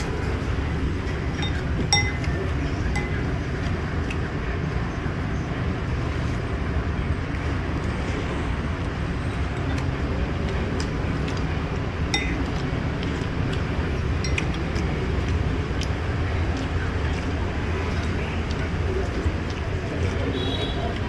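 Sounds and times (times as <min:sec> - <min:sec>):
street traffic rumble: 0:00.0 - 0:21.0
spoon and chopsticks clinking bowl: 0:01.4 - 0:03.4, 0:12.1 - 0:12.6, 0:14.2 - 0:14.7.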